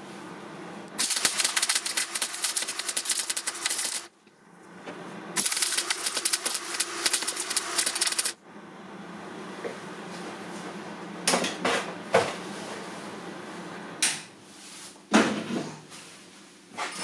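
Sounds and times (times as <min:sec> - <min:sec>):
welding arc crackling: 0:00.9 - 0:04.1, 0:05.4 - 0:08.4.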